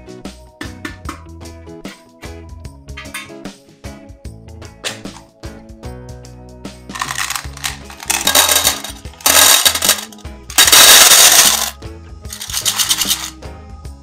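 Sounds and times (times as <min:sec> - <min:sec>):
soft background music: 0:00.0 - 0:14.0
candies clattering into a metal tin: 0:06.9 - 0:13.4.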